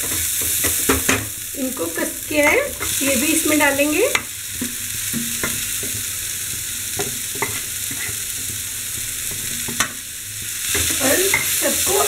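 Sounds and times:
vegetables sizzling in oil: 0.0 - 12.0
wooden spatula scraping pan: 7.0 - 8.5.

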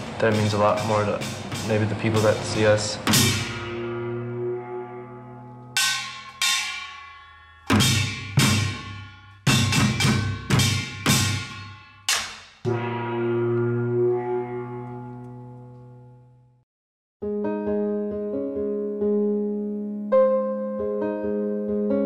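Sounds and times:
drum strokes: 0.0 - 4.4, 5.7 - 14.9
ringing gong strokes: 0.0 - 16.3.

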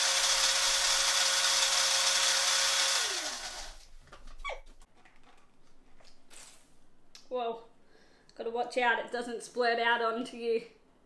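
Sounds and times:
blender motor whining: 0.0 - 3.8.

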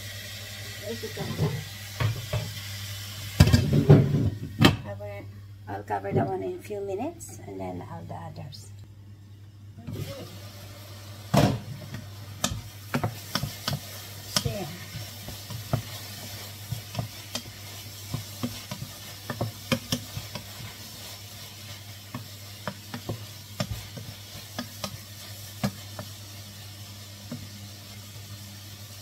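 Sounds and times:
faint sizzle: 0.0 - 29.0
spatula scraping pot: 12.5 - 26.2.

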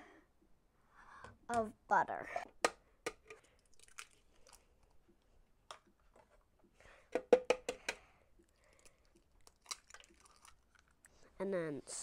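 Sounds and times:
knocks on plastic bowl: 7.2 - 8.0.

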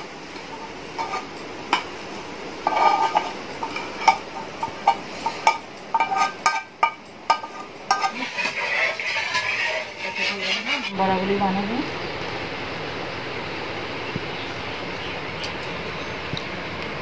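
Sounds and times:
spatula scraping a pan: 0.0 - 1.9, 2.6 - 11.3
utensils knocking on a pot: 2.6 - 10.6.

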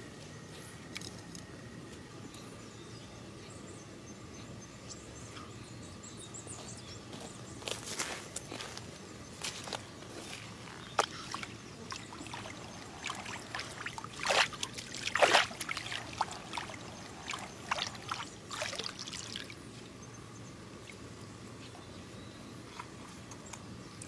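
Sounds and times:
water trickling and splashing: 10.2 - 19.9.

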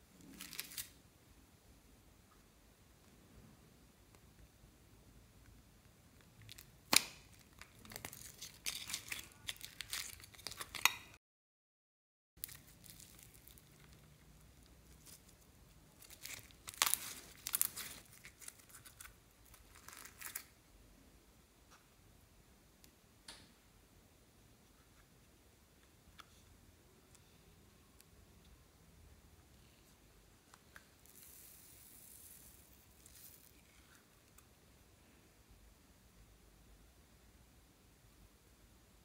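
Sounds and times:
slime crackling and crinkling: 0.2 - 1.0, 6.2 - 11.0, 12.4 - 20.6, 30.9 - 34.4.

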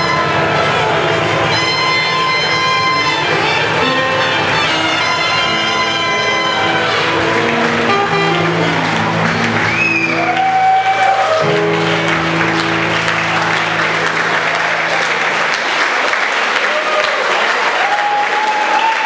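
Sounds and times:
dance band sustained chord: 0.0 - 9.8
audience applause: 0.0 - 19.0.

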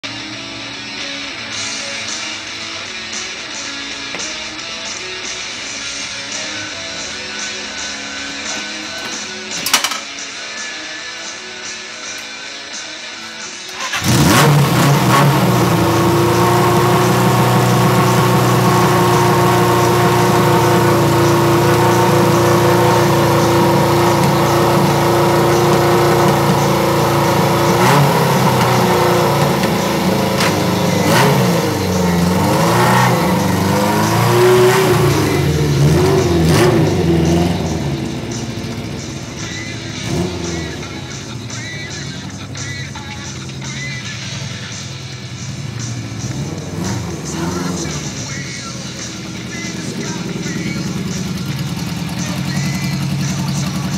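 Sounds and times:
motorcycle revving and riding away: 13.8 - 53.9
motorcycle engine idling: 15.4 - 53.9.

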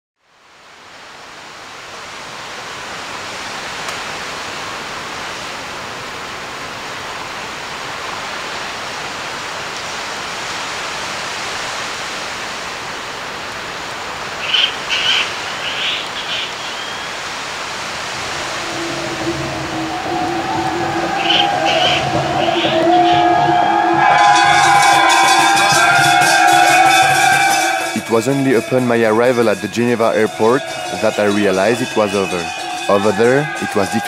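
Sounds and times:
rushing outdoor ambience: 0.3 - 34.0
short high bird calls: 14.4 - 17.2, 18.3 - 23.2.

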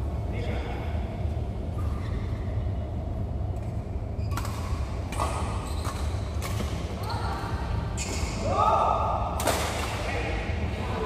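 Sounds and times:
steady low rumble: 0.0 - 5.6.

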